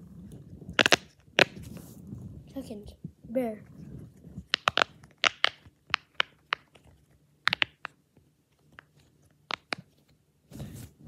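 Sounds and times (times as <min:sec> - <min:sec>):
pop-it toy bubbles popping: 0:00.8 - 0:01.6, 0:04.5 - 0:06.7, 0:07.4 - 0:08.0.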